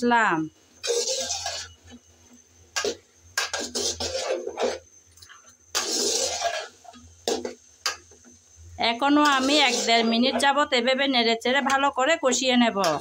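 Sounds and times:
spatula scraping metal pot: 0:00.8 - 0:02.0, 0:02.8 - 0:07.6, 0:08.9 - 0:10.8.

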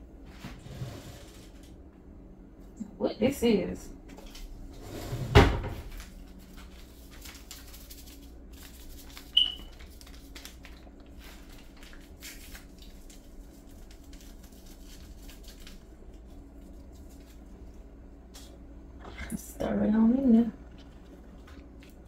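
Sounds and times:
packet crinkling and tearing: 0:06.0 - 0:17.5.

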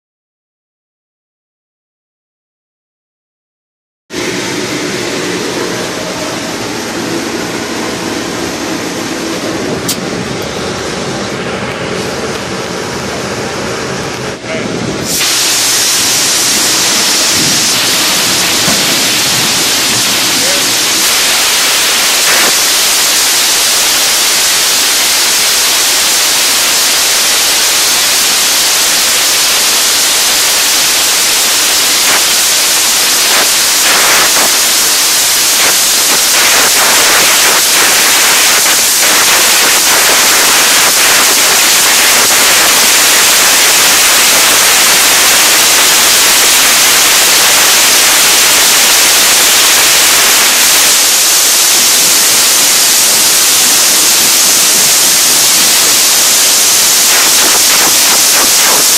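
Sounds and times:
compressed air hissing in duct: 0:15.0 - 0:58.9.

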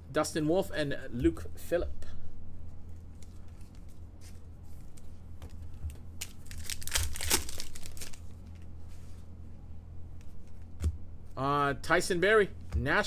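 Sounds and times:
foil wrapper crinkling: 0:06.2 - 0:08.6.

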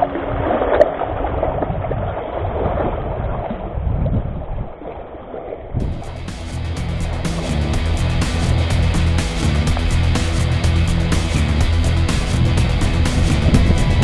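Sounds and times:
sea water sloshing among boulders: 0:00.0 - 0:05.8
music: 0:05.8 - 0:14.0.

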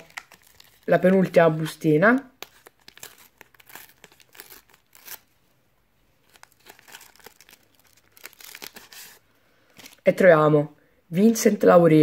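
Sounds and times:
sticker packet being torn open: 0:00.0 - 0:01.3, 0:02.3 - 0:05.3, 0:06.2 - 0:09.2.

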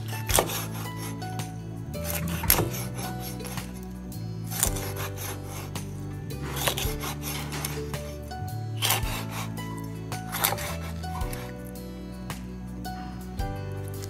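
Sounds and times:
cleaver scraping through fish: 0:00.0 - 0:03.8, 0:04.5 - 0:08.2, 0:08.8 - 0:11.6
background music: 0:00.0 - 0:14.0.

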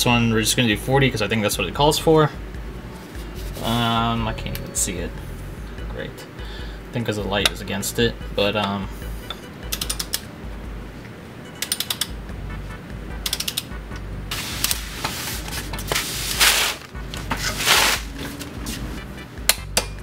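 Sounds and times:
torque wrench ratchet ticking: 0:13.2 - 0:13.7.

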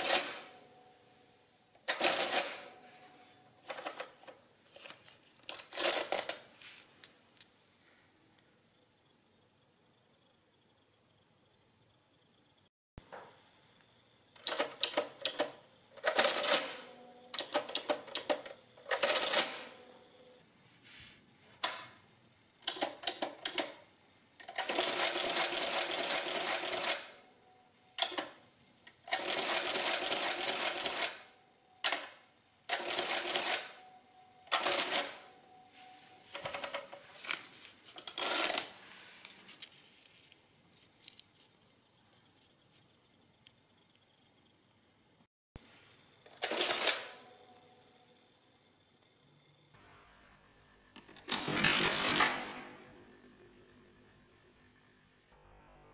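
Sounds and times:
adding machine keys clacking: 0:01.8 - 0:02.8, 0:03.6 - 0:06.6, 0:14.4 - 0:19.8, 0:34.5 - 0:35.3, 0:36.3 - 0:38.8, 0:46.2 - 0:47.3.

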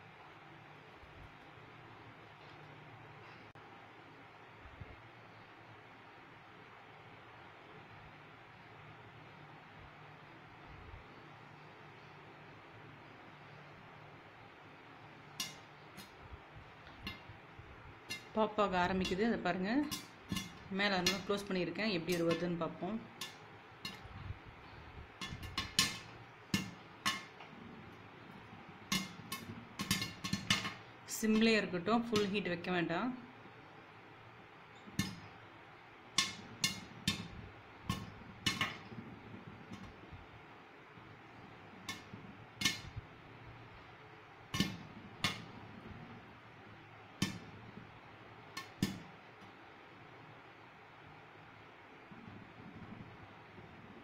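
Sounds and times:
faint steady hiss: 0:00.0 - 0:54.0
corn kernels popping: 0:15.3 - 0:16.2, 0:16.8 - 0:32.4, 0:34.8 - 0:35.4, 0:36.1 - 0:40.1, 0:41.0 - 0:43.7, 0:44.4 - 0:46.3
pops tapping against glass lid: 0:25.2 - 0:27.4.

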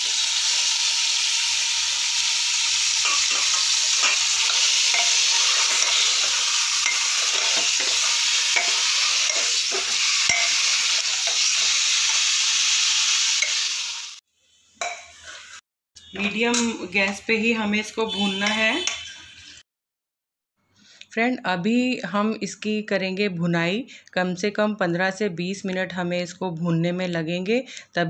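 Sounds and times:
meat sizzling in hot oil: 0:00.0 - 0:14.2
metal spoon scraping a pot: 0:02.8 - 0:12.2, 0:14.8 - 0:17.2, 0:17.8 - 0:19.6.

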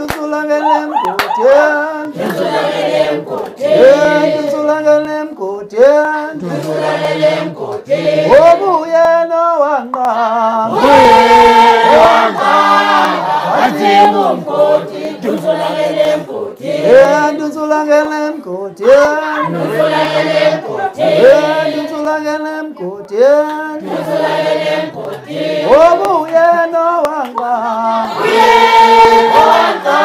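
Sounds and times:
group of voices singing: 0:00.0 - 0:30.0
men singing unaccompanied: 0:00.0 - 0:30.0.

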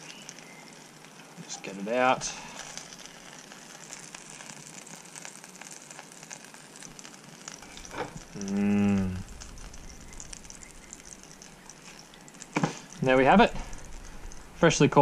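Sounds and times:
fish sizzling in oil: 0:00.0 - 0:15.0.

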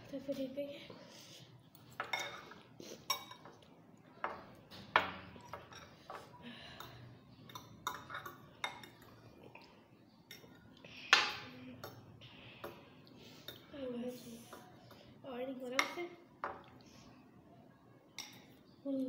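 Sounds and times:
cutlery clinking on glass bowls: 0:01.9 - 0:09.2, 0:10.3 - 0:12.8, 0:18.2 - 0:18.6.

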